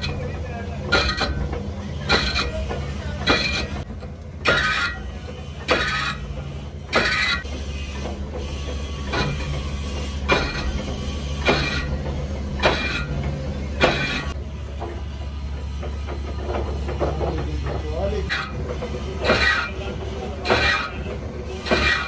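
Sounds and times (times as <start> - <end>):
sharp scraping knock: 2.0 - 5.0, 5.6 - 11.9, 15.8 - 21.0, 21.6 - 22.0.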